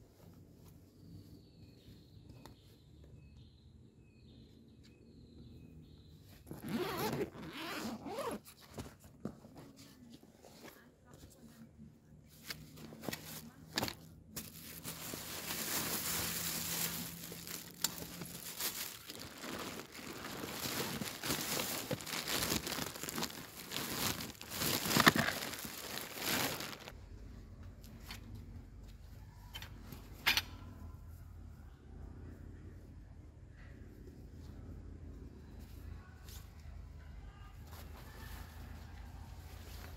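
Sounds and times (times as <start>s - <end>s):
plastic bags crinkling: 13.9s - 27.0s.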